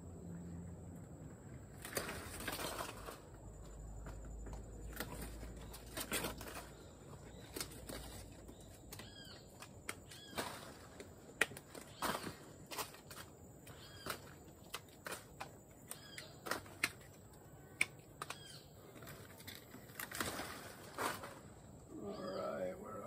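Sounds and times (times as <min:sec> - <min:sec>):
leaves and branches rustling: 0:00.9 - 0:23.0
bird chirping: 0:04.8 - 0:10.8, 0:13.6 - 0:14.4, 0:15.8 - 0:19.3, 0:21.9 - 0:23.0.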